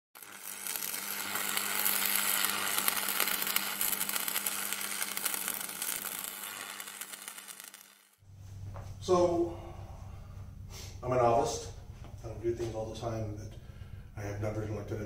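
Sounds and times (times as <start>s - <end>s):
static hiss and crackle: 0.2s - 8.2s
steady low hum: 8.2s - 15.0s.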